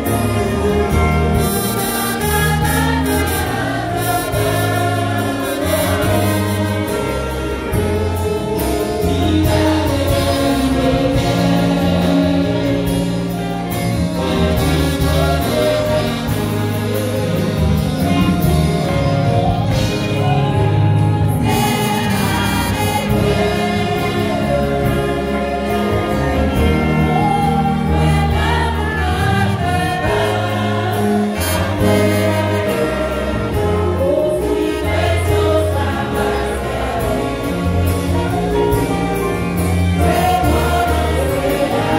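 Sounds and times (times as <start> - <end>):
instrumental backing notes: 0.0 - 41.9
women singing worship song: 20.2 - 37.9, 40.0 - 41.9.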